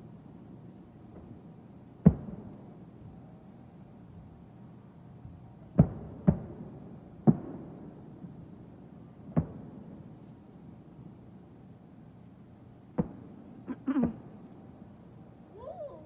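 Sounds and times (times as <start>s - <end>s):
fireworks bursting: 12.9s - 14.7s.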